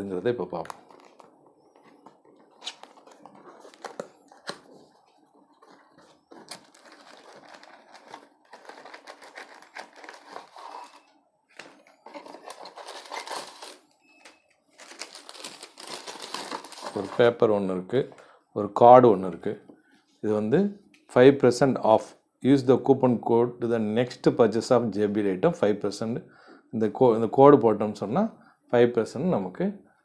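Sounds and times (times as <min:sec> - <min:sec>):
cardboard and paper rustling: 0:00.7 - 0:13.9, 0:14.7 - 0:17.3.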